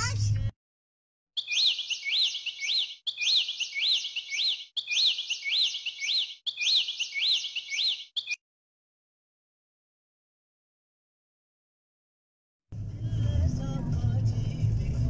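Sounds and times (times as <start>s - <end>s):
bird chirp sound effect: 1.4s - 8.4s.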